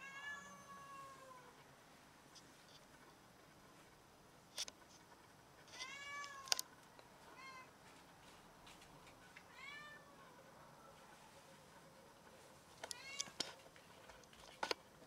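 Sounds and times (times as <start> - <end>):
cat meowing: 0.0 - 1.5, 5.8 - 6.5, 9.5 - 10.3.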